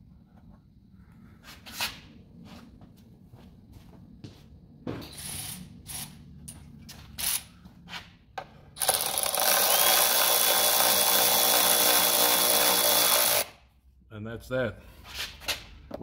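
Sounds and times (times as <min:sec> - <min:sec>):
cordless power tool running: 0:08.8 - 0:13.5.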